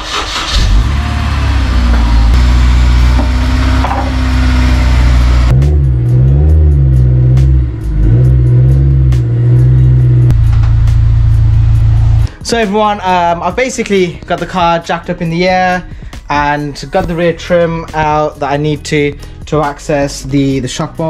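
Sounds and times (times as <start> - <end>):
car engine revving: 0.0 - 12.3.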